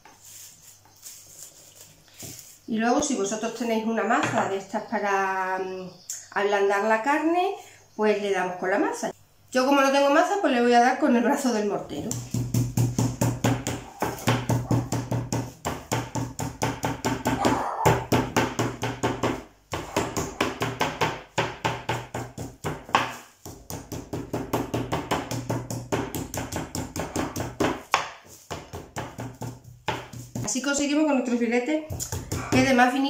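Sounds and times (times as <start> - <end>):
pestle pounding meat on board: 12.1 - 30.5, 31.9 - 32.8.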